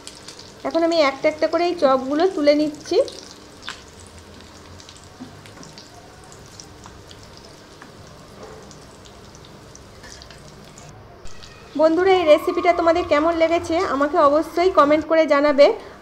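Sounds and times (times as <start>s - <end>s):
fish frying in hot oil: 0.0s - 11.5s.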